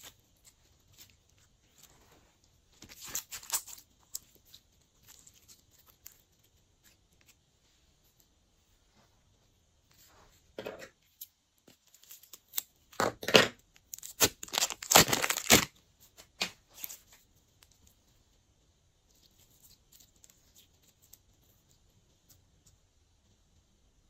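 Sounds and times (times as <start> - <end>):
slime squelching and crackling: 13.8 - 15.8.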